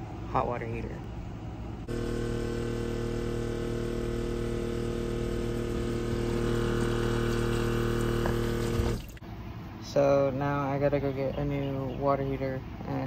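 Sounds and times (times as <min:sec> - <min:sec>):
water heater humming: 0:00.0 - 0:09.4.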